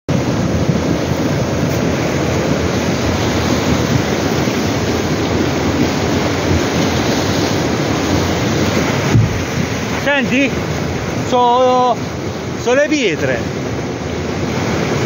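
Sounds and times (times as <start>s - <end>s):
floodwater rushing: 0.1s - 15.0s.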